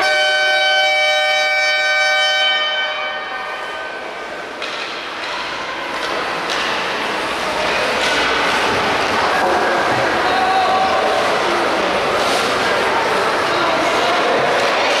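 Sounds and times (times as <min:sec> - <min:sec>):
electric horn high tone: 0:00.0 - 0:03.3.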